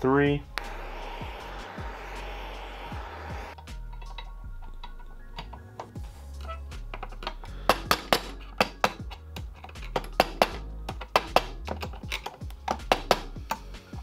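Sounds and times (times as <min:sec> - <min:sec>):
hammer tapping metal: 0:07.0 - 0:11.6.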